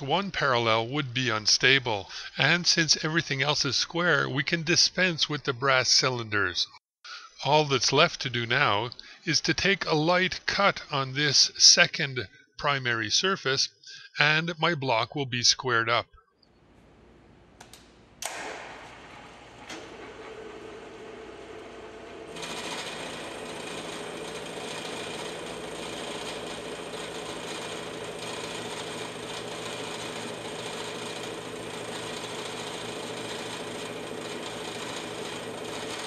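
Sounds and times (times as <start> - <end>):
machine click: 17.6 - 20.3
milling machine cutting steel: 18.2 - 36.0.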